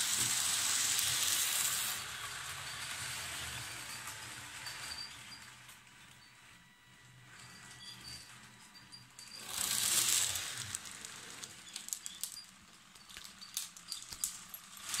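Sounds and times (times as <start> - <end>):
model locomotive running past: 0.0 - 5.9, 9.4 - 11.6.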